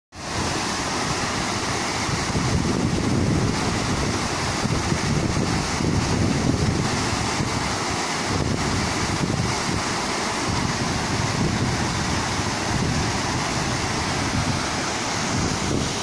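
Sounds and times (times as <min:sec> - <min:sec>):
waterfall pouring over rocks: 0:00.2 - 0:16.0.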